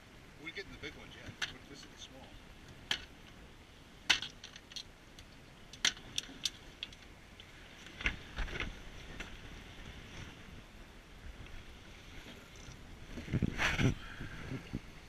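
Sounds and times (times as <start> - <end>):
clicks and knocks on metal boat deck: 2.8 - 3.2, 4.1 - 4.9, 5.7 - 7.0.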